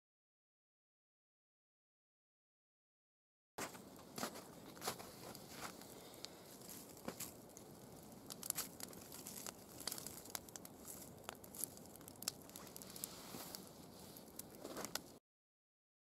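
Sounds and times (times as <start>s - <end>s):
log crunching and scraping: 3.6s - 15.2s
wood fire crackling and popping: 3.6s - 15.2s.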